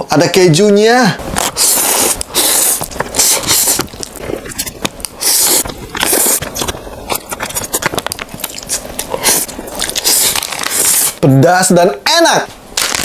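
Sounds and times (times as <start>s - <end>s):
wet chewing clicks: 1.4s - 11.1s
person slurping noodles: 1.4s - 11.2s.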